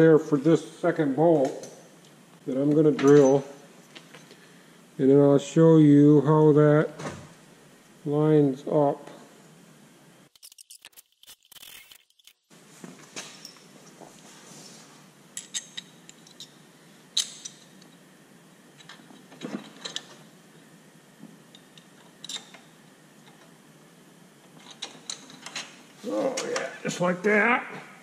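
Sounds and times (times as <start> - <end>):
small metal parts clinking: 10.3 - 12.4.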